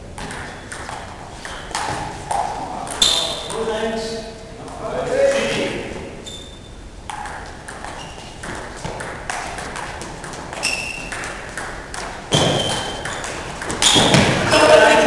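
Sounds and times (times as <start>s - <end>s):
table tennis ball hits: 0.2s - 3.7s, 7.1s - 14.8s.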